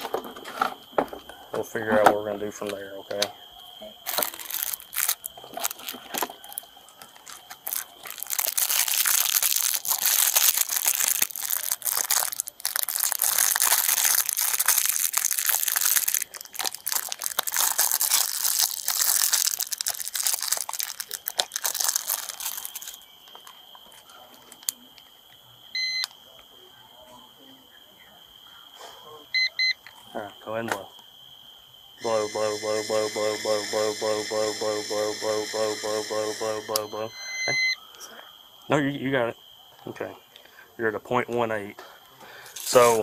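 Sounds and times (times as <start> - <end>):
plastic wrapper crinkling: 4.0 - 23.6, 42.5 - 43.0.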